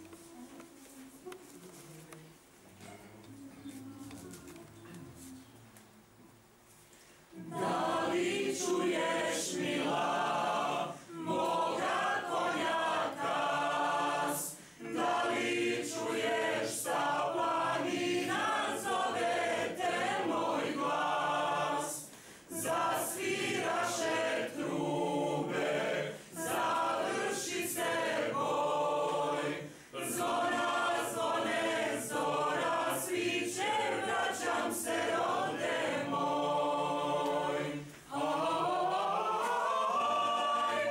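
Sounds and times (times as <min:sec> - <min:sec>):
mixed choir singing a cappella: 0:07.3 - 0:40.9.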